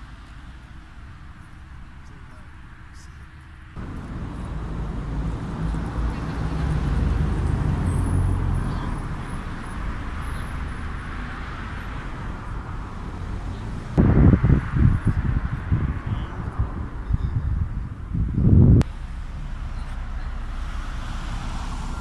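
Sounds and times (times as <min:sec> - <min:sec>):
vehicle passing: 0:03.8 - 0:22.0.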